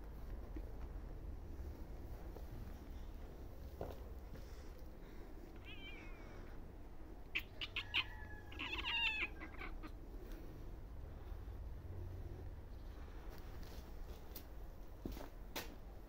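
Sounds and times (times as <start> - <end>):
kittens meowing: 5.6 - 6.6, 7.2 - 10.0.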